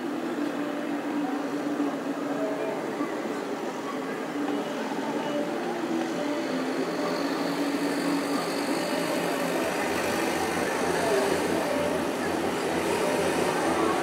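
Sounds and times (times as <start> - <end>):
city traffic hum: 5.4 - 14.0.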